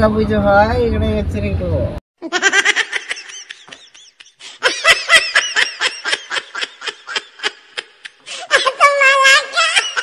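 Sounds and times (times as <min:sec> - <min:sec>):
woman laughing: 0:02.2 - 0:10.0.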